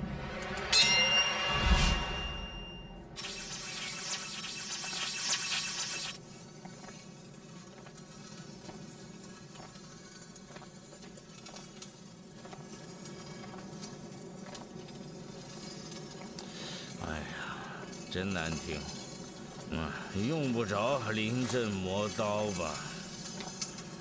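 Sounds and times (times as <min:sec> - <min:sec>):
faint scraping and scratching: 0:06.2 - 0:24.0.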